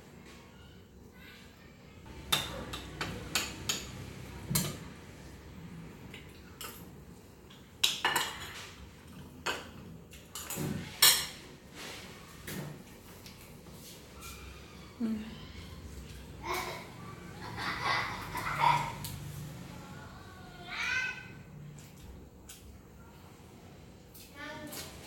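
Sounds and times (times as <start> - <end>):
cutlery and dishes clinking: 2.2 - 4.9, 6.1 - 11.5.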